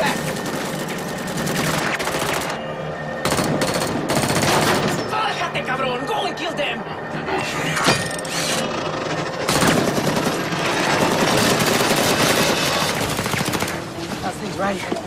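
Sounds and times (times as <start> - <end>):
automatic gunfire: 3.2 - 4.9, 9.4 - 13.8.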